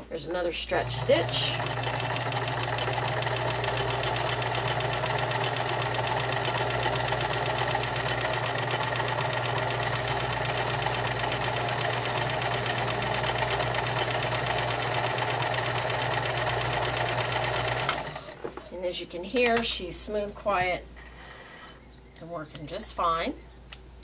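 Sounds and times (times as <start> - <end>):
sewing machine running: 0.7 - 18.4.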